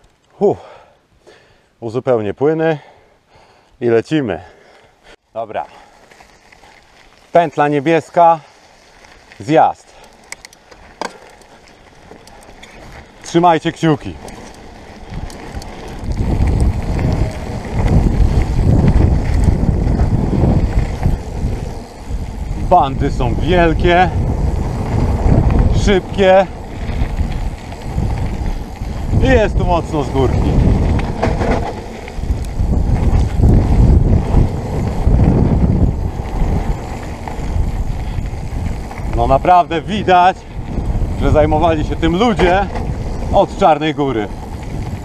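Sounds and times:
bike tyres rolling on gravel: 0:04.0 - 0:45.0
small clicks and rattles: 0:09.9 - 0:13.4, 0:14.1 - 0:18.4
wind buffeting microphone: 0:10.3 - 0:45.0.

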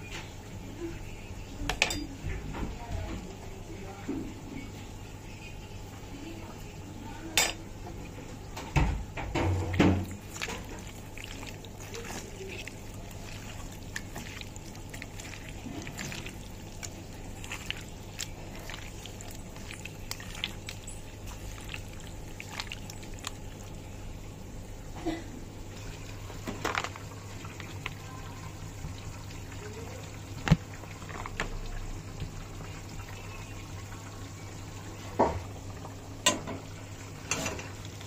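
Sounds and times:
wet squishing by hand: 0:09.6 - 0:24.2, 0:26.7 - 0:32.4.

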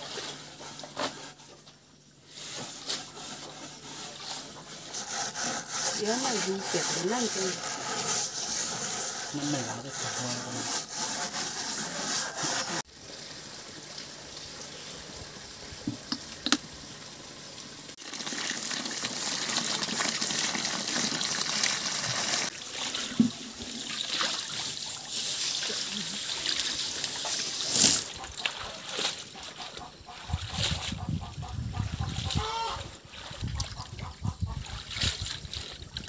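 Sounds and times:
water sloshing in metal basin: 0:19.3 - 0:36.0.

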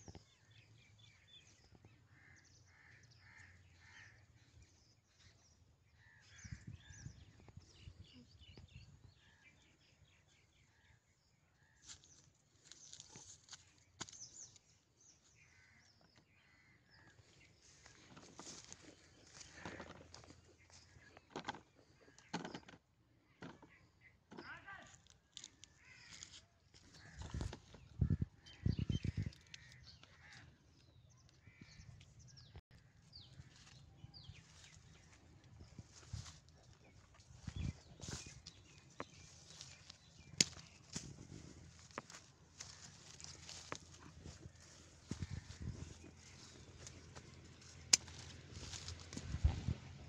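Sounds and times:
birds chirping and calling: 0:00.0 - 0:50.0
fruit tapping on leafy ground: 0:39.0 - 0:41.2, 0:46.7 - 0:49.3.

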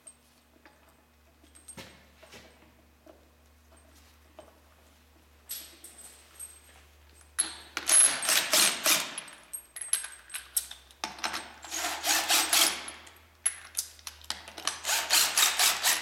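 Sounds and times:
power wrench rattling: 0:14.5 - 0:16.0.

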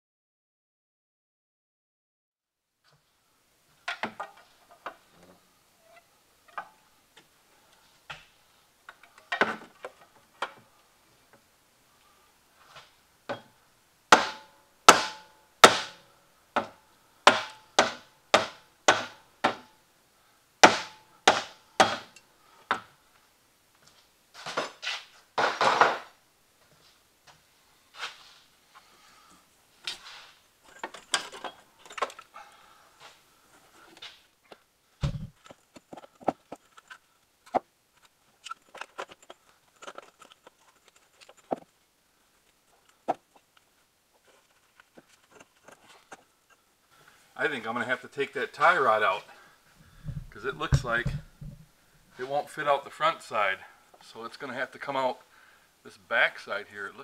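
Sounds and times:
hammer striking metal: 0:14.2 - 0:16.0
tools clanking on metal: 0:30.6 - 0:32.3
dull thud: 0:35.0 - 0:35.4, 0:50.0 - 0:51.7
metal scraping: 0:49.8 - 0:51.7.

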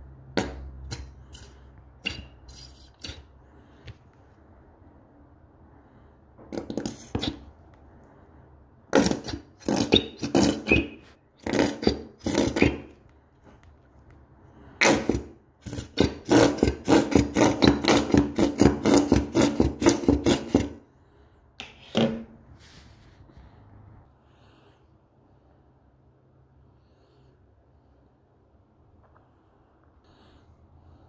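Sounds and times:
squeeze bottle sputtering: 0:00.4 - 0:03.3, 0:08.9 - 0:13.0, 0:14.8 - 0:20.8.

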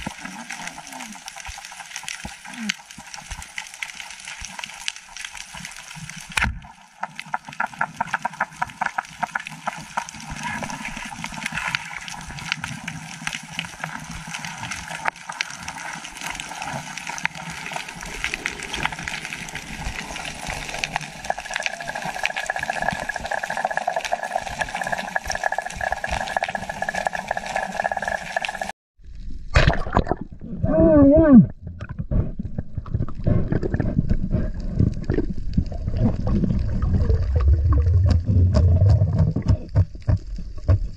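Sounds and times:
water hissing and gurgling: 0:00.0 - 0:28.7, 0:31.7 - 0:40.9
speargun shot underwater: 0:29.5 - 0:30.4.

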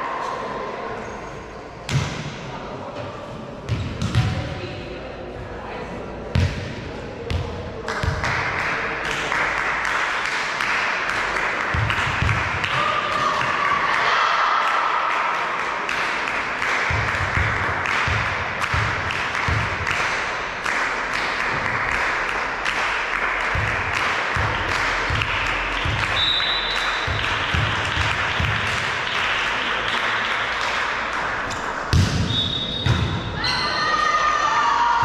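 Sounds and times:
spectators clapping in rhythm: 0:07.8 - 0:31.9.

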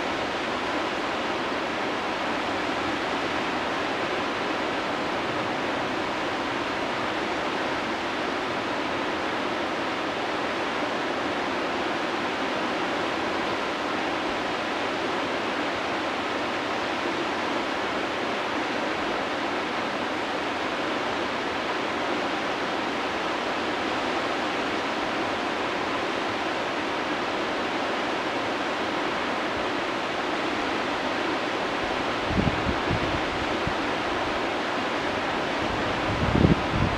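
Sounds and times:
river rapids rushing: 0:00.0 - 0:36.9.

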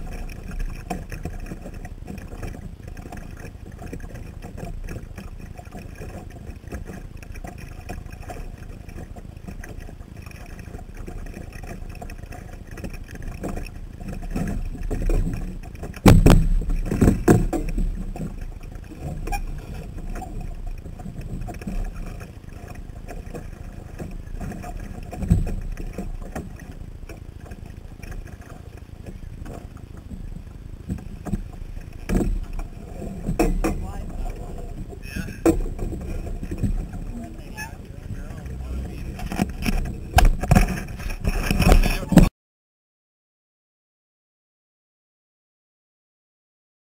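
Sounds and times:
water thumps and splashes: 0:00.0 - 0:42.3
water washing against boat hull: 0:00.0 - 0:42.3.

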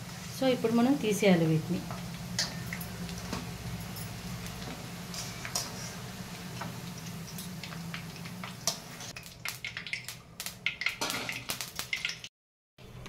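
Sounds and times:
low steady hum: 0:00.0 - 0:10.5
okra sizzling in hot oil: 0:00.0 - 0:12.3.

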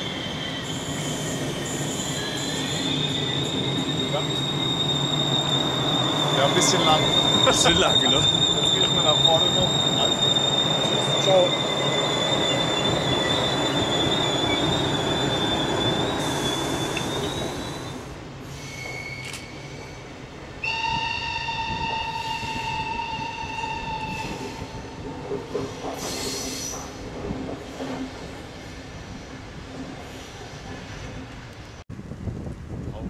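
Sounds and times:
train wheels squealing: 0:00.0 - 0:31.3
train horn: 0:20.6 - 0:24.7.

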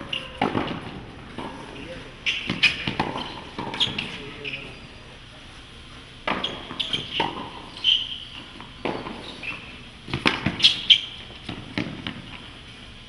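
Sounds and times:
shoe squeaks: 0:00.0 - 0:00.4, 0:01.7 - 0:05.1, 0:06.3 - 0:09.9, 0:10.5 - 0:11.2.

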